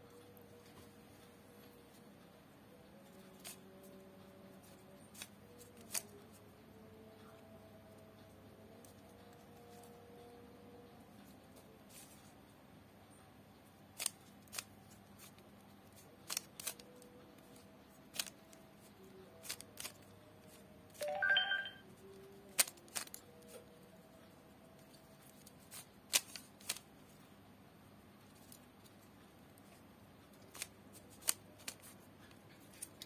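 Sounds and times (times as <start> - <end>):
puzzle cube clicking as turned: 5.1 - 6.2, 14.0 - 15.5, 16.2 - 17.0, 18.1 - 18.6, 19.3 - 20.1, 22.5 - 23.2, 25.4 - 26.9, 30.3 - 32.0.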